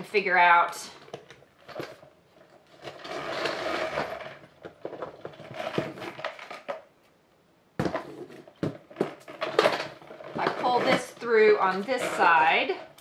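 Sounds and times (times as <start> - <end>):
metal chain clinking and rattling: 0.9 - 6.7.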